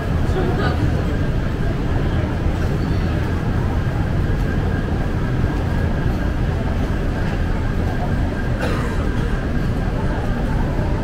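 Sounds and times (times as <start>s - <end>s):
low rumble of passing vehicles: 0.0s - 11.0s.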